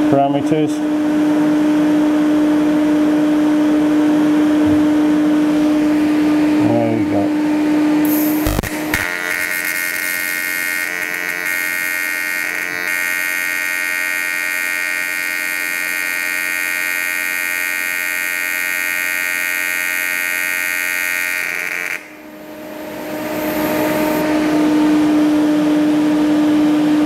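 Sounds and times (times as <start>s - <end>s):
steady hum and hiss: 0.0s - 14.3s
welding arc buzzing: 8.0s - 24.3s.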